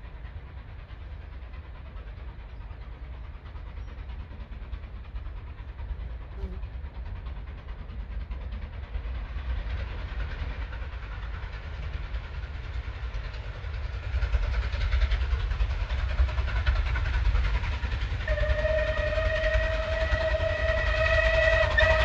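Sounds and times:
steam locomotive rumble: 0.0s - 22.0s
steam whistle: 18.2s - 22.0s.

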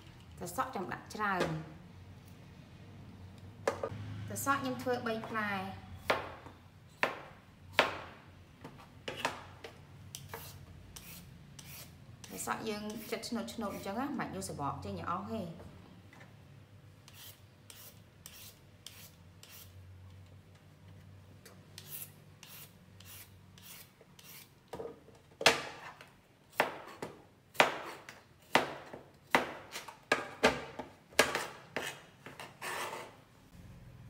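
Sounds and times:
peeler rasping on cucumber: 10.2s - 13.9s, 17.1s - 19.7s, 21.8s - 24.5s.

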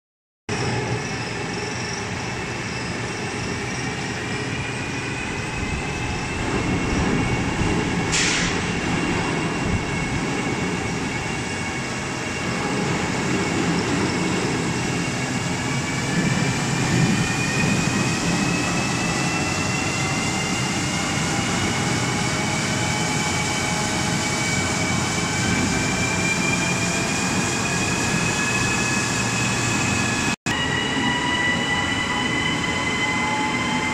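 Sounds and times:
brief hiss: 8.1s - 8.7s.

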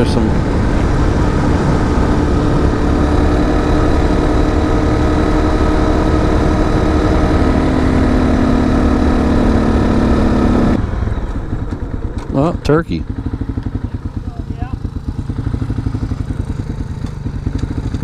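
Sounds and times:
wind rumble: 0.0s - 12.3s
motorcycle engine running: 0.0s - 18.0s.

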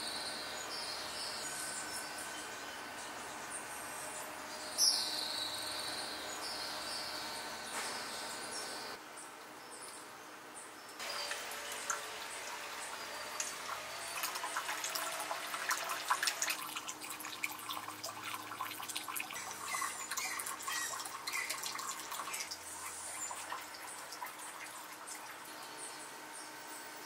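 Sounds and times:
fountain water trickling: 11.0s - 26.4s.

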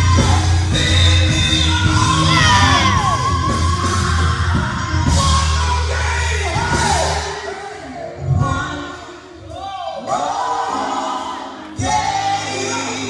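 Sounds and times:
steady bass line: 0.0s - 7.5s
live band music: 0.0s - 13.0s
singers belting and shouting: 0.0s - 13.0s.

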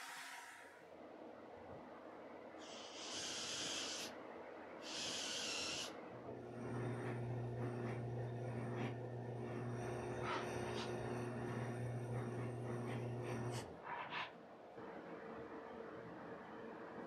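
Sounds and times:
drill press motor hum: 5.1s - 13.7s.

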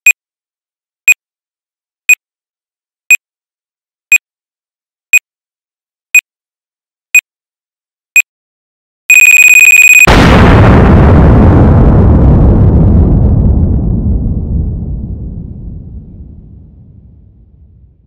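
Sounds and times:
short high electronic beeps: 9.1s - 10.1s
steady electronic tone: 9.1s - 10.3s.

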